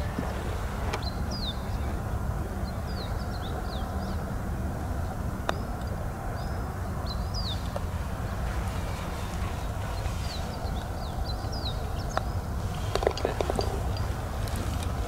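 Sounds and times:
small birds chirping: 0.0s - 2.0s, 5.5s - 15.0s
putter striking golf ball: 12.2s - 14.9s.

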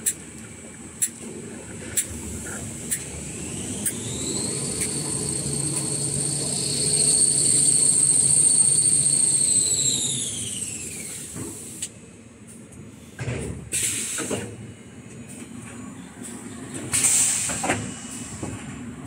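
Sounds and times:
high motor whine: 2.2s - 11.1s.

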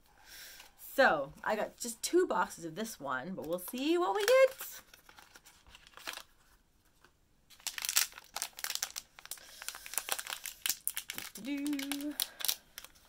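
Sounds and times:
packaging crinkling torn open: 4.2s - 6.3s, 7.5s - 13.0s.

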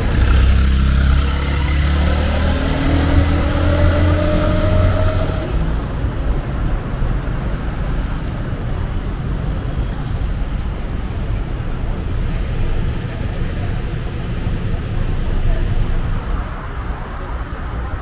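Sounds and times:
vehicle passing close by: 0.0s - 6.0s
traffic rumble: 0.0s - 18.0s.

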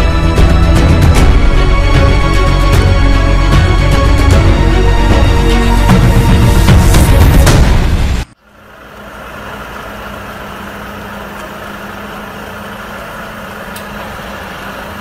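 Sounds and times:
diesel truck engine low rumble: 0.0s - 15.0s.

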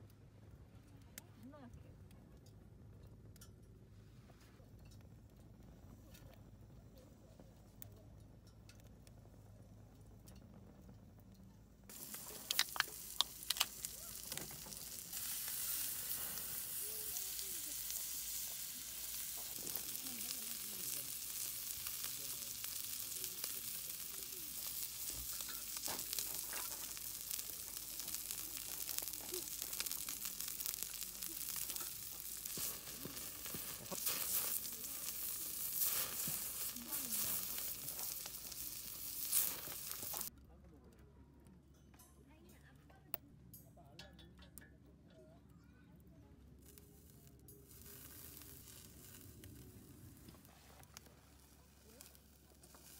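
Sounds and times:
meat sizzling on griddle: 11.9s - 40.3s, 47.6s - 50.4s, 51.2s - 52.9s.

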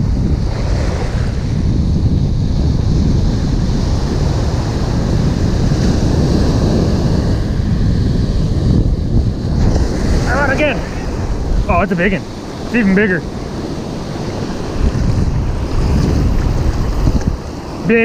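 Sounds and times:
surf breaking on sand: 0.0s - 18.0s
wind buffeting microphone: 0.0s - 18.0s.

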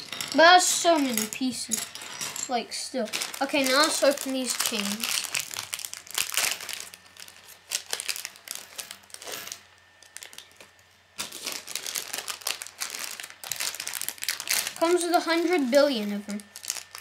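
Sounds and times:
plastic parts clattering on wood: 0.0s - 5.7s
plastic bag crinkling and tearing: 2.4s - 17.0s.

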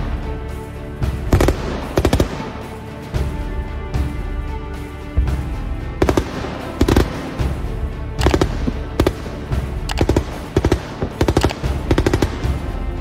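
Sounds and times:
autocannon firing bursts: 1.3s - 2.6s, 6.0s - 7.6s, 8.2s - 12.8s.

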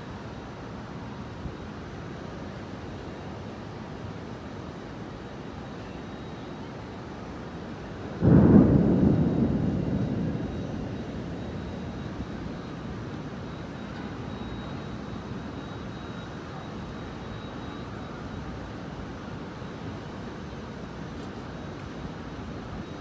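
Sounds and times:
steady rain: 0.0s - 23.0s
thunderclap rolling into rumble: 8.1s - 14.7s.

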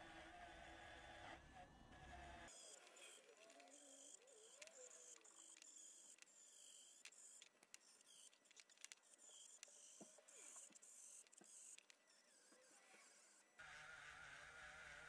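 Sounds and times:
wire brush in rotary tool scratching: 2.5s - 13.6s.

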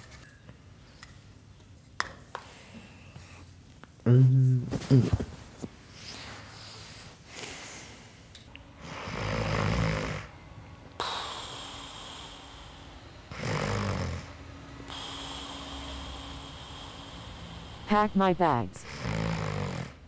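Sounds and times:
man snoring: 8.8s - 10.3s, 11.0s - 17.9s, 18.8s - 20.0s.

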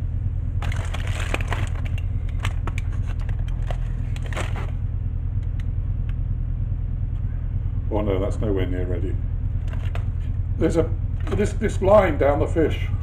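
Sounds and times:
oven humming: 0.0s - 13.0s
aluminium foil crinkling: 0.6s - 4.7s.

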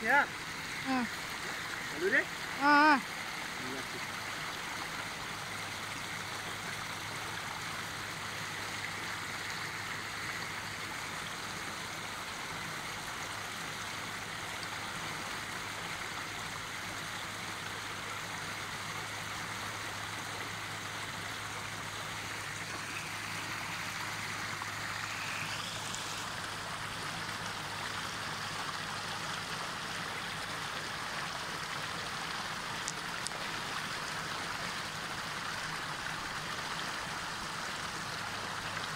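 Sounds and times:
water rushing through trap: 21.3s - 34.7s.

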